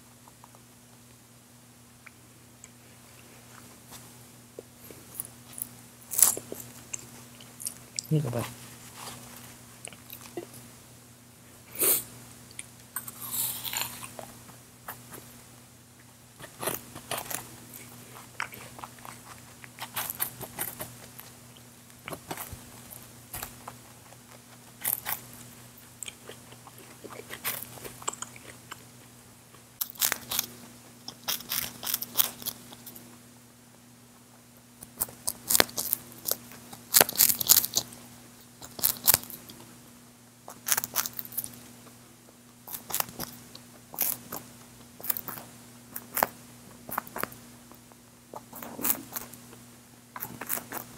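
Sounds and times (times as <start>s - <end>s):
rabbit chewing: 16.0s - 33.2s, 34.3s - 50.9s.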